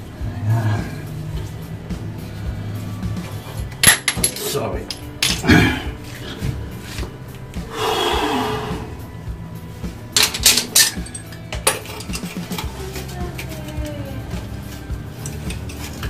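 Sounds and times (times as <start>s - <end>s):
faint music: 0.0s - 16.0s
metal clinks from wrench and pipes: 3.6s - 5.5s, 10.2s - 16.0s.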